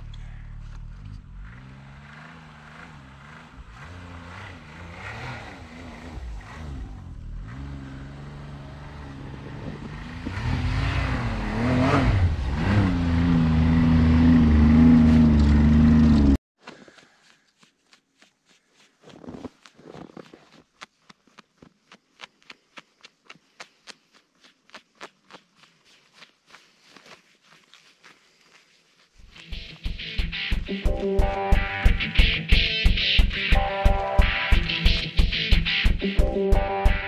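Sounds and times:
snowmobile engine: 0.0s - 16.4s
faint rustling: 16.7s - 30.0s.

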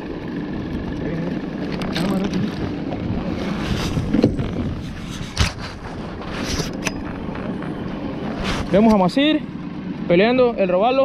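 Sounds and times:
low hum: 0.0s - 11.0s
wind buffeting microphone: 1.7s - 9.0s.

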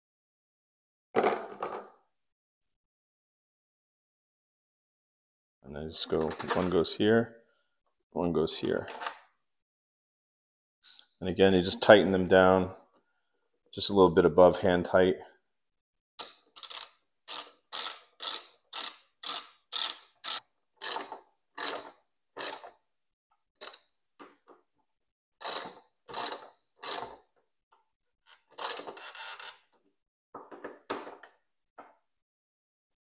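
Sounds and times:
ratchet rasping: 16.2s - 22.7s, 25.4s - 27.2s, 28.3s - 29.6s.

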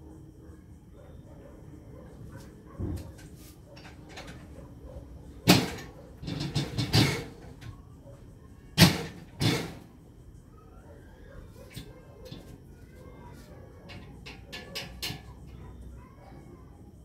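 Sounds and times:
knocks and clatters of handling: 2.8s - 4.6s, 5.4s - 7.8s.

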